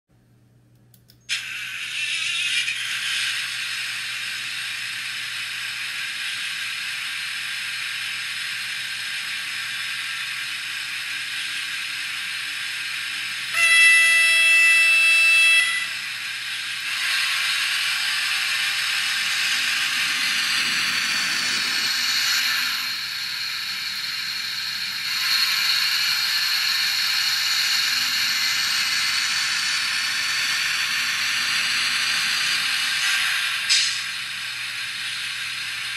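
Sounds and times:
loud locomotive horn: 0:13.5 - 0:16.0
faint rising whine: 0:17.8 - 0:25.0.

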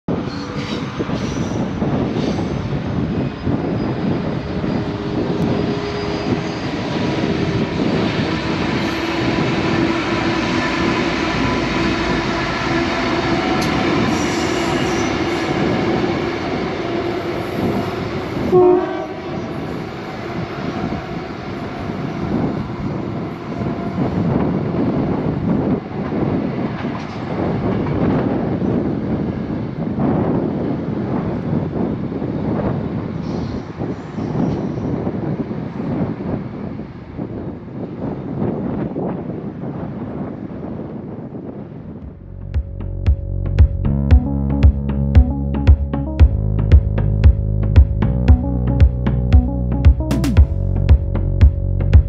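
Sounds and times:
train horn blast: 0:08.6 - 0:21.0.

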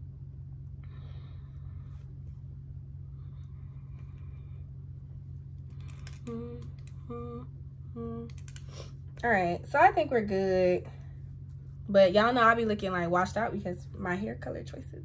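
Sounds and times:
steady low hum: 0:00.0 - 0:15.0
short hummed notes: 0:06.1 - 0:08.5.

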